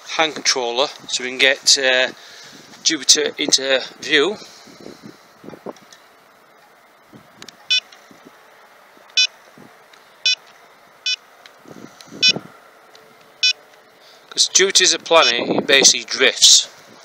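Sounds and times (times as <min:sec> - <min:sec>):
short electronic beeps: 0:07.7 - 0:07.9, 0:10.2 - 0:10.4, 0:11.0 - 0:11.2, 0:12.2 - 0:12.4.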